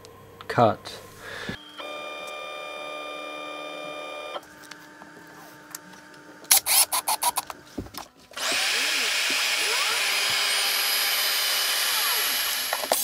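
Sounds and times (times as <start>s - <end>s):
stepper motors whining: 1.5s - 7.5s, 8.4s - 13.0s
cordless drill driving screw: 8.4s - 13.0s.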